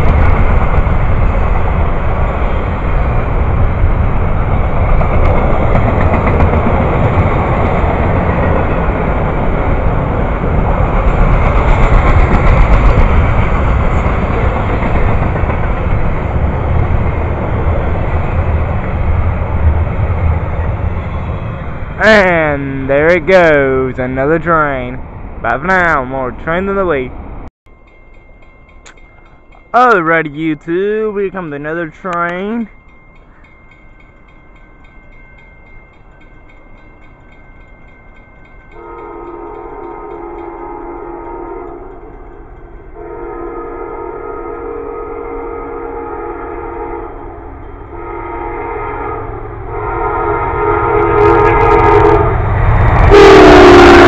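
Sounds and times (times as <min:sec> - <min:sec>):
train wheels rumbling on rail: 0:00.0 - 0:54.0
locomotive horn chord: 0:38.8 - 0:42.2, 0:42.9 - 0:54.0.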